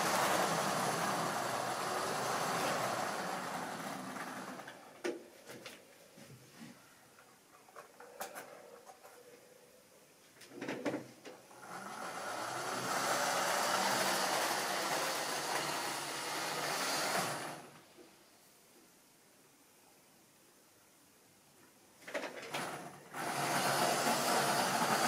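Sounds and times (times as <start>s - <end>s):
model train motor whirring: 0.0s - 4.9s, 11.6s - 17.7s, 22.5s - 25.0s.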